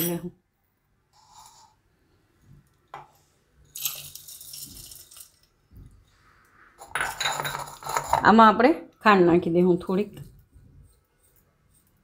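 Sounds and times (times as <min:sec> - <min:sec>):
dry snacks rattling into jar: 0:03.7 - 0:05.5.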